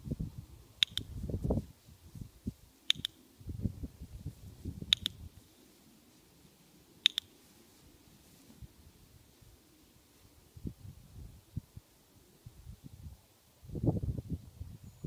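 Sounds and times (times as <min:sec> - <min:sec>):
clicker double clicks: 0:00.8 - 0:01.1, 0:02.9 - 0:03.2, 0:04.9 - 0:05.2, 0:07.0 - 0:07.3.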